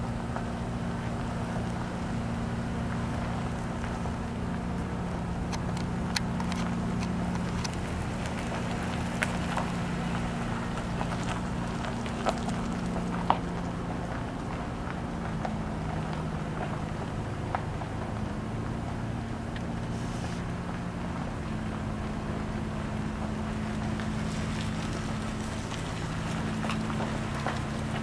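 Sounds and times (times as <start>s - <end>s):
engine idling: 0.0s - 28.0s
footsteps on gravel: 2.7s - 18.2s, 23.0s - 28.0s.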